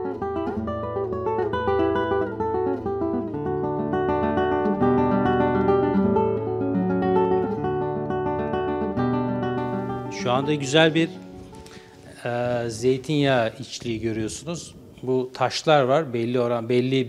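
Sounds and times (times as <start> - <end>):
acoustic guitar melody: 0.0 - 15.1.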